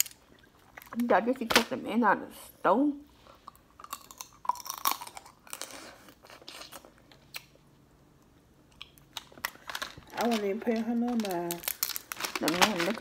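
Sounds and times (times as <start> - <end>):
chewing and crunching food: 3.4 - 7.6
small clicks and crackles: 8.8 - 13.0.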